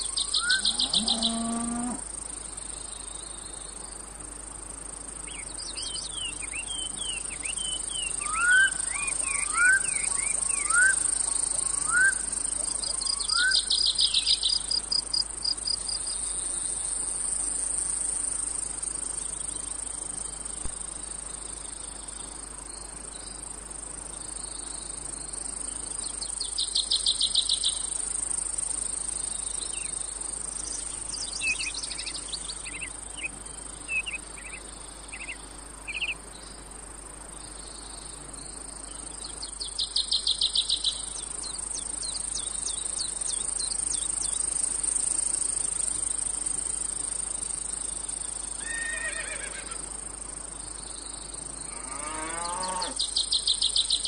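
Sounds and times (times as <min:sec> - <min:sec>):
cicada chorus: 0:00.0 - 0:54.0
bird chirps: 0:05.3 - 0:14.6.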